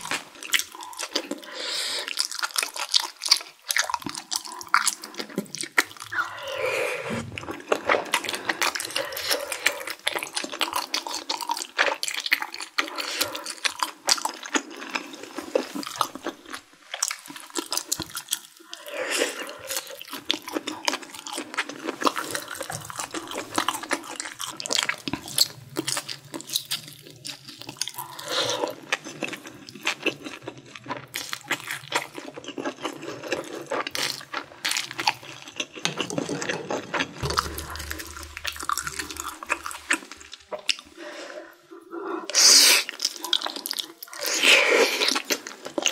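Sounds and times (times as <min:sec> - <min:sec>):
wet chewing: 0:00.0 - 0:45.9
slurping noodles: 0:04.2 - 0:12.0.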